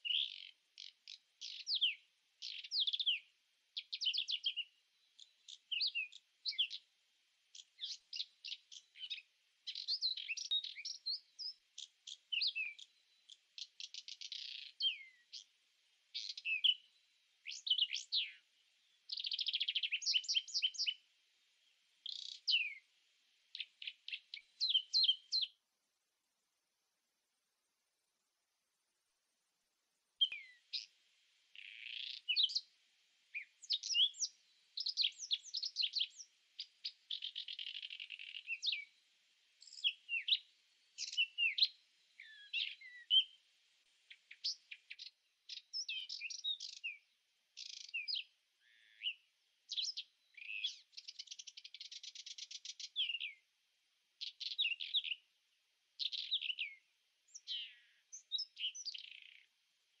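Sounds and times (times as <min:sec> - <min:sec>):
small birds chirping: 0:00.0 - 0:25.7, 0:30.1 - 1:00.0.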